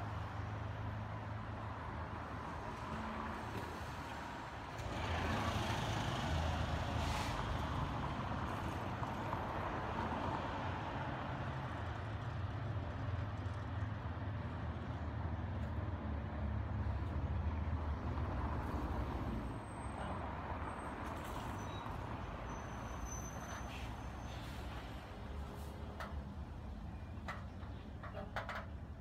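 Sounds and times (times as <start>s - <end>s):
road traffic noise: 0.0s - 29.0s
vehicle engine rumble: 11.5s - 29.0s.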